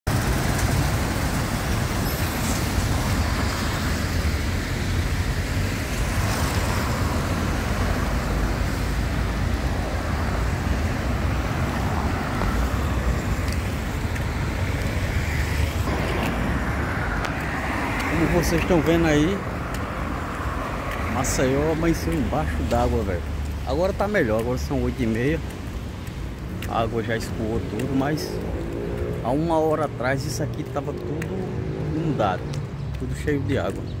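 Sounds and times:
cars passing: 0.1 - 34.0.

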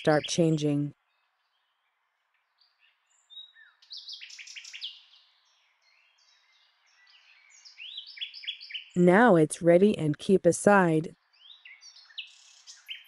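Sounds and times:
faint bird chirps: 2.5 - 9.0, 11.3 - 13.0.

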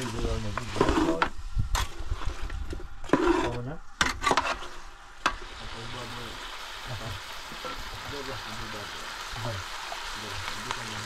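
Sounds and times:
sizzling hiss: 3.2 - 11.0.

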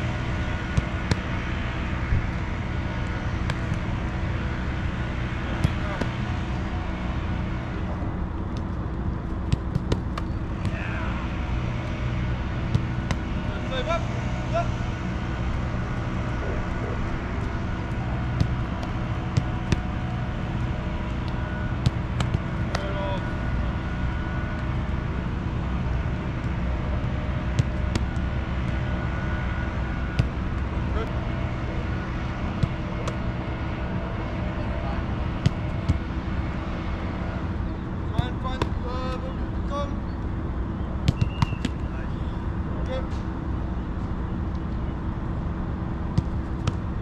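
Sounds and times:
low outdoor rumble: 0.0 - 47.0
soccer ball kicks: 0.1 - 6.7, 8.4 - 13.5, 17.1 - 24.8, 25.5 - 33.8, 35.1 - 36.3, 41.0 - 41.9, 46.0 - 47.0.

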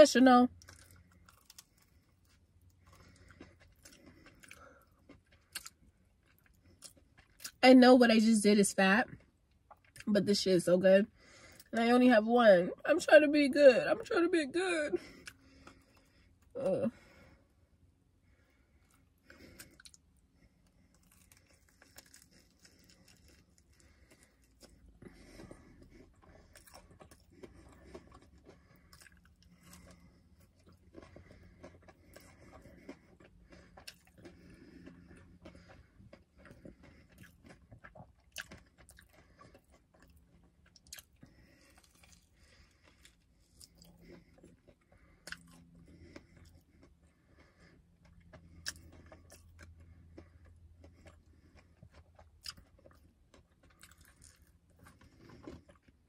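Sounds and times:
chewing crispy fried food: 0.1 - 7.8, 8.5 - 10.4, 11.0 - 14.1, 14.9 - 56.0.

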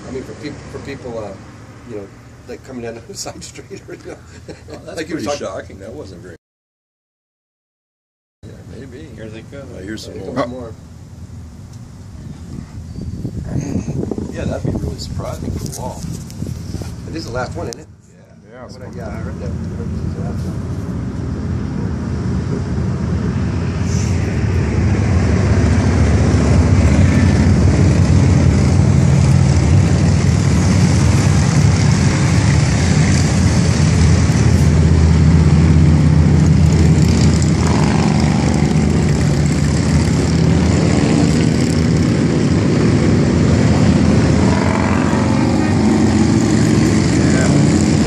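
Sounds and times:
cars passing: 0.0 - 6.1, 18.7 - 48.0
motorcycles riding past: 19.1 - 48.0.

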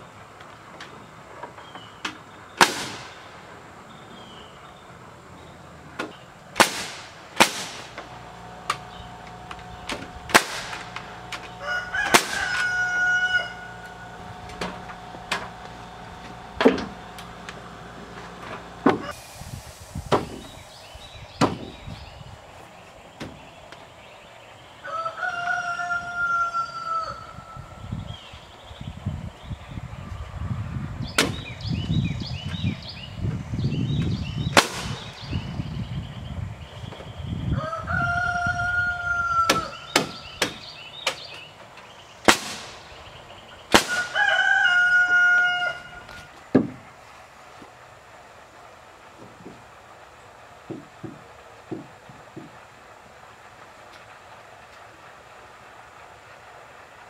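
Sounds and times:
nail gun firing into wood: 2.6 - 3.3, 6.0 - 12.7, 31.2 - 31.5, 34.6 - 35.2, 39.5 - 41.4, 42.2 - 42.8, 43.7 - 44.2
rooster crowing: 10.8 - 15.6, 24.8 - 27.7, 37.5 - 40.3, 43.8 - 46.3.

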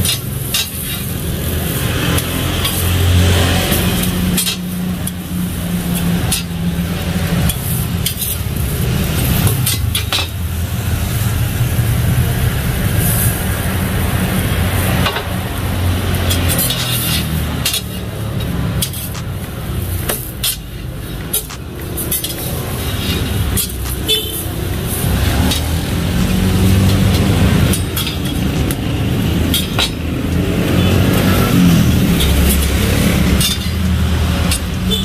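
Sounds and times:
metal spatulas scraping griddle: 0.0 - 10.5, 12.9 - 13.5, 14.4 - 30.1, 30.7 - 35.0
engine rumble: 0.0 - 35.0
street traffic: 0.0 - 35.0.

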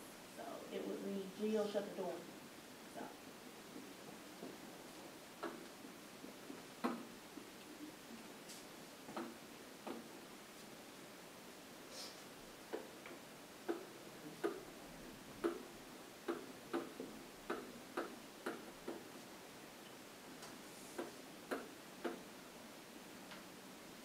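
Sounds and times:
stylus tapping on whiteboard: 6.8 - 7.1, 9.1 - 10.1, 15.4 - 15.7, 16.3 - 19.0.

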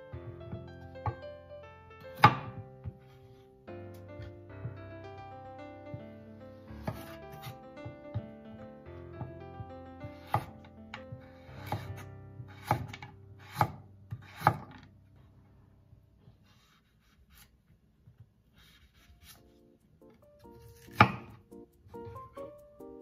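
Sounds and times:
background music with held notes: 0.0 - 15.8, 18.8 - 23.0
knife chopping on wooden board: 2.1 - 3.0, 6.8 - 8.0, 10.2 - 10.7, 11.3 - 14.8, 20.8 - 21.4.

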